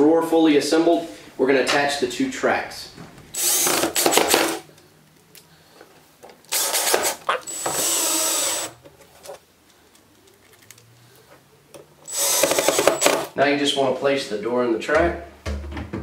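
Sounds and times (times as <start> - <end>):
cordless drill driving screws: 3.4 - 4.6, 6.5 - 8.8, 12.1 - 13.3.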